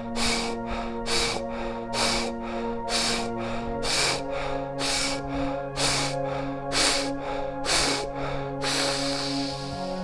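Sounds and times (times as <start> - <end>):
deep rhythmic breathing: 0.0 - 10.0
synth pad music drone: 0.0 - 10.0.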